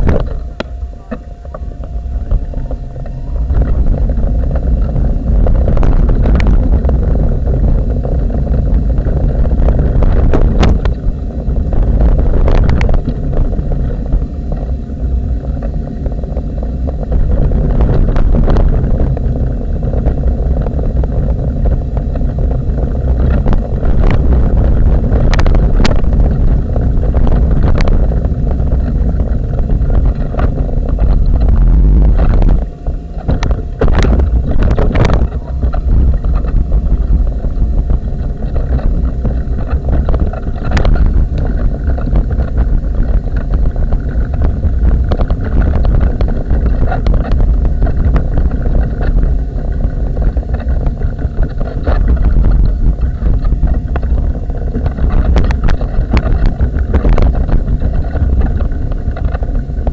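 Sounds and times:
wheelchair rumble and rattle: 0:00.0 - 0:59.9.

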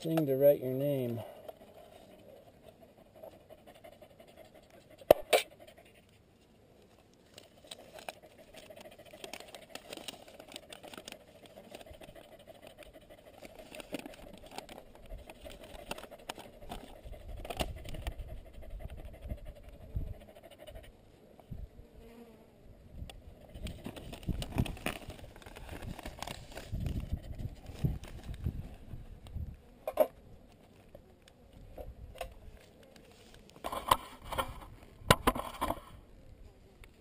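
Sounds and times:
paper rustling and crinkling: 0:07.0 - 0:18.0, 0:23.6 - 0:28.9.

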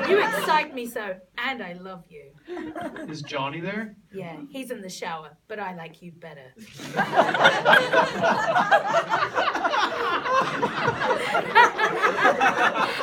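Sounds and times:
audience laughing loudly: 0:00.0 - 0:00.7, 0:02.5 - 0:03.4, 0:06.7 - 0:13.0.

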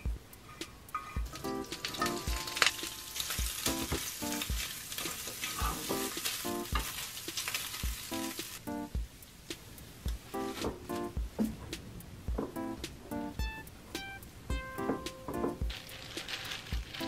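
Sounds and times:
soft background music with beat: 0:00.0 - 0:17.0
meat sizzling in a pan: 0:00.9 - 0:08.6.

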